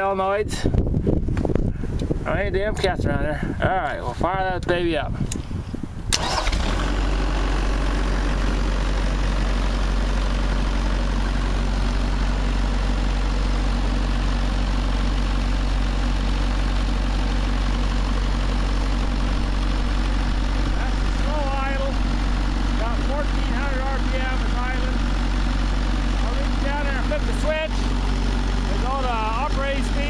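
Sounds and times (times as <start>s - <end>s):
diesel engine starting and idling: 6.1s - 30.0s.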